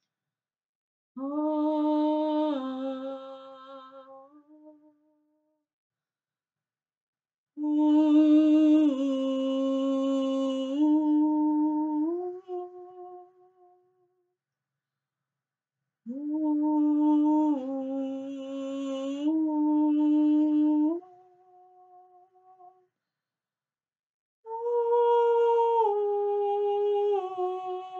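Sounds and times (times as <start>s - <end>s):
woman singing wordless phrases: 1.2s - 4.8s, 7.6s - 13.3s, 16.1s - 22.7s, 24.5s - 27.9s.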